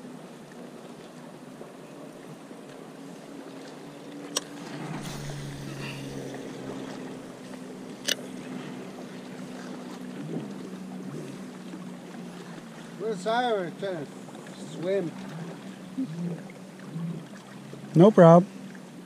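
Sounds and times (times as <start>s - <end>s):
low motor hum: 0.0s - 19.0s.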